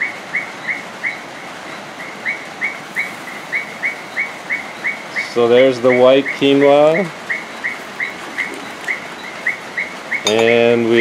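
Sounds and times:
bird chirping: 0.4 - 11.0.

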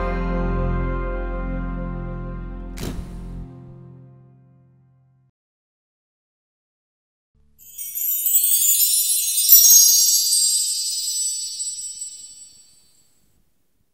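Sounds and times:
small chimes ringing: 7.6 - 13.0.

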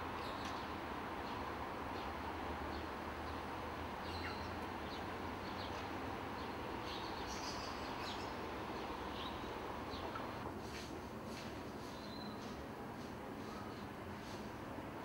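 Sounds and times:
outdoor background hum: 0.0 - 15.0
small birds chirping: 4.0 - 10.4.

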